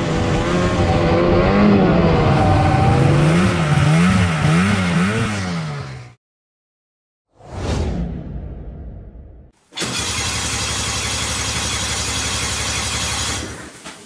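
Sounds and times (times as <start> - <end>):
snowmobile engine revving: 0.0 - 6.2.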